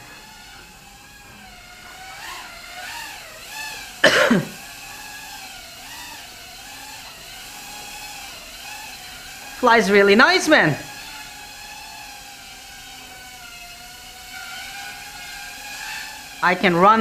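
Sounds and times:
quadcopter motors whining: 0:00.0 - 0:17.0
person coughing: 0:04.0 - 0:04.6.

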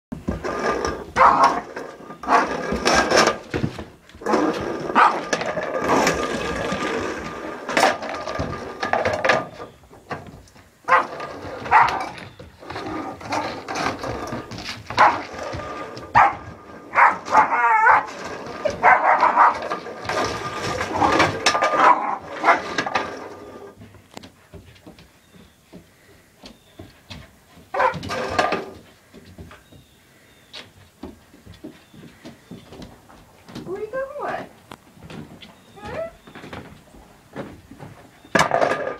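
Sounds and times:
dish clattering on wooden floor: 0:00.2 - 0:23.6, 0:38.3 - 0:38.9
puppy barking and yapping: 0:01.2 - 0:01.6, 0:05.0 - 0:05.3, 0:10.9 - 0:12.2, 0:15.0 - 0:15.3, 0:16.2 - 0:19.7, 0:27.7 - 0:28.1.

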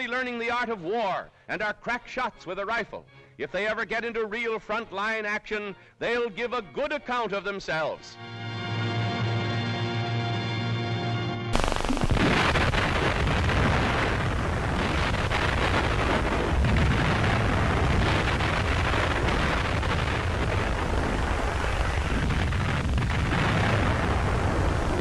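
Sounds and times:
explosions: 0:11.5 - 0:25.0
gunfire: 0:11.6 - 0:22.2
heavy low rumble: 0:11.6 - 0:25.0.

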